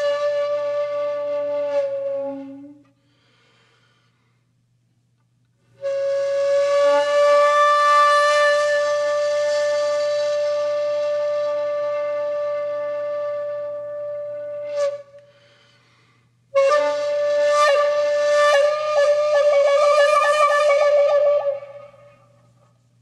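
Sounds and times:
flute-like wind instrument: 0.0s - 3.0s, 5.8s - 15.6s, 16.5s - 22.4s.

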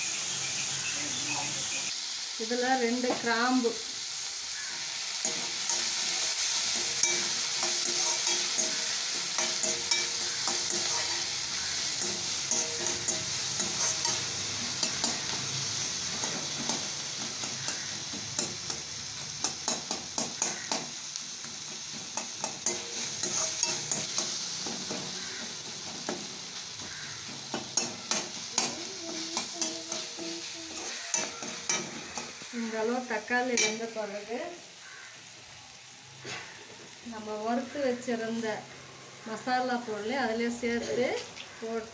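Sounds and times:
vegetables sizzling in oil: 0.0s - 41.9s
spatula scraping metal pan: 5.2s - 15.4s, 21.8s - 32.5s.

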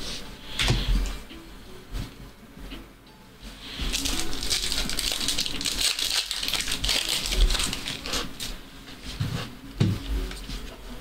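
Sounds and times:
foil wrappers crinkling and tearing: 3.8s - 8.6s.

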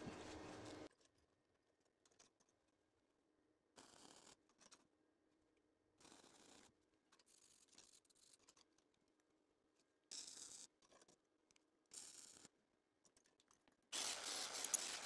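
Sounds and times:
welding arc crackling: 14.0s - 15.0s.

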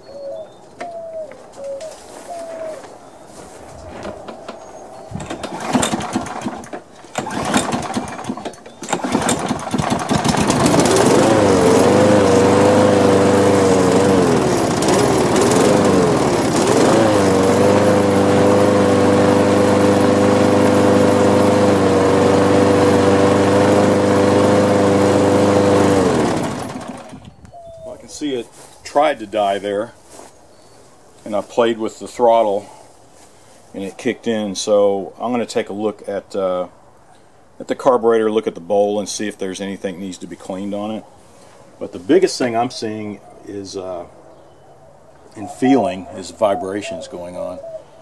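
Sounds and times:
lawn mower engine: 5.2s - 27.3s.

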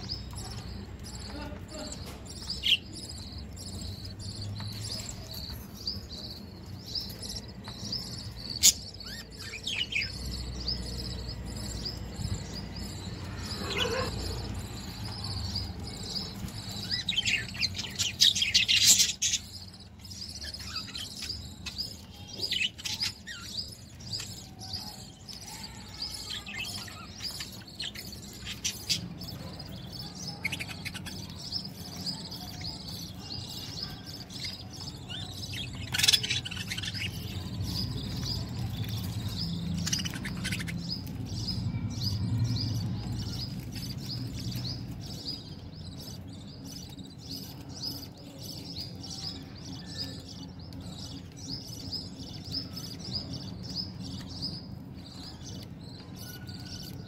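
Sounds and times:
budgerigars chirping and warbling: 0.0s - 57.0s.

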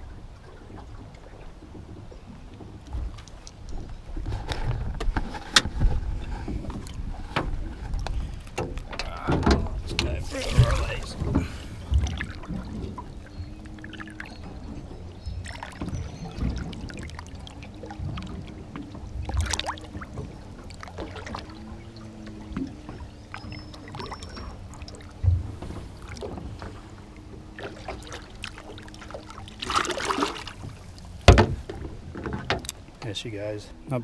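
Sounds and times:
faint wavering humming drone: 0.0s - 34.0s
river water sloshing and lapping: 0.0s - 34.0s
water splashing: 0.0s - 34.0s
dull knocks: 29.8s - 32.7s.

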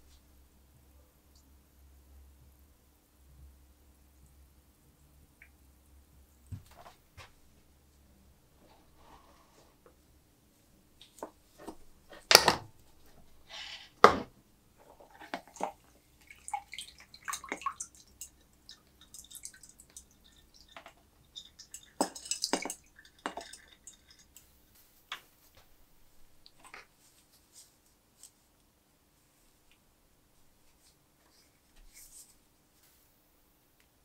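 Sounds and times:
liquid dripping and splashing: 14.9s - 24.6s.

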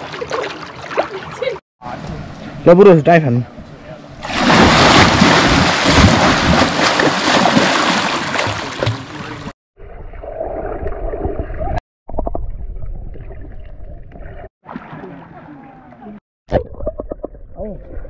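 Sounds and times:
water splashing and rushing: 0.0s - 2.5s, 4.2s - 11.8s, 13.0s - 16.7s.

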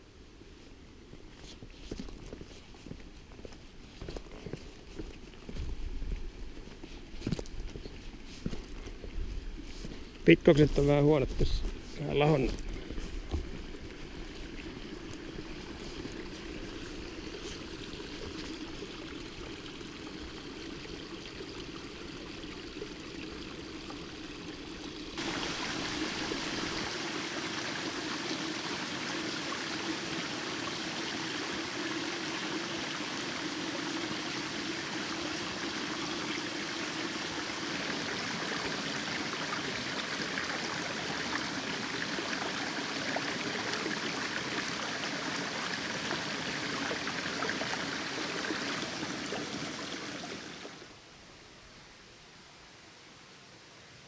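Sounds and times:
running water rushing: 1.5s - 51.6s.

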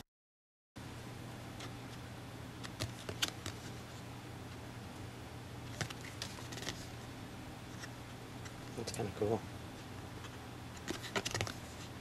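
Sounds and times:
steady low hum: 0.8s - 12.0s
cards clicking and tapping: 2.6s - 3.7s, 5.7s - 6.8s, 10.8s - 11.6s.

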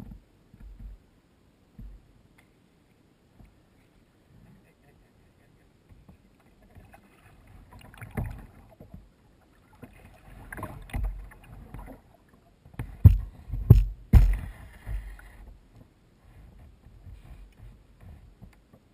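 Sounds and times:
paddle water swishing and splashing: 5.8s - 18.9s
sharp knocks: 12.8s - 15.1s.

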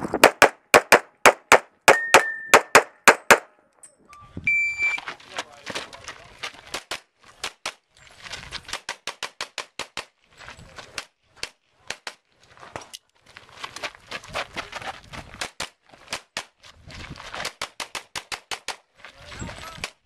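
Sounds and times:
pistol shots: 0.2s - 3.5s.

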